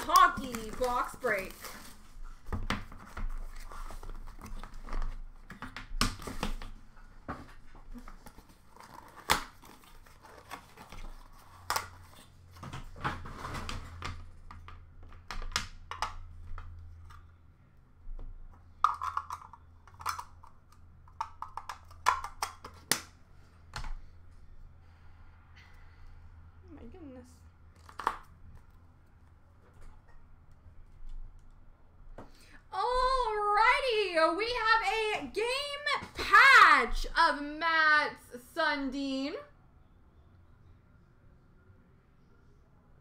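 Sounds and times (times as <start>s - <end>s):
cardboard box and cards handled: 7.4s - 13.4s.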